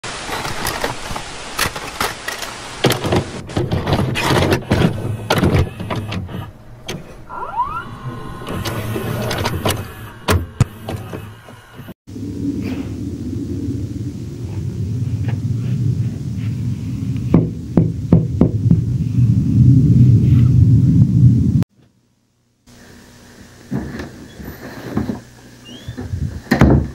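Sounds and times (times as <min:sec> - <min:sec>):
tape mechanism clicks and knocks: 0:01.6 - 0:07.0
motor whirring: 0:04.0 - 0:12.0
rising whine: 0:04.6 - 0:21.6.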